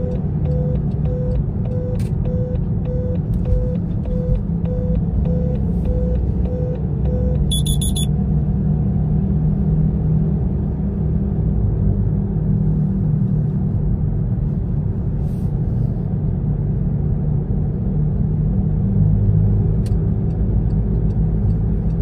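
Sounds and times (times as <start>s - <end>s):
car road and engine rumble: 0.0s - 22.0s
high electronic beeping: 7.2s - 8.1s
soft regular pulse: 7.5s - 8.1s.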